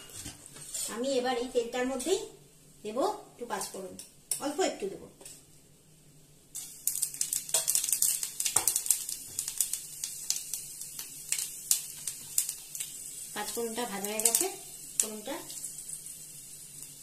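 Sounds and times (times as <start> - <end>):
seeds crackling in hot oil: 6.4 - 17.0.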